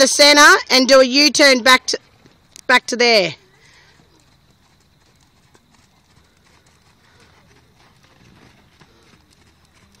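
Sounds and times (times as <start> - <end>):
horse hoofbeats on dirt: 3.8 - 10.0.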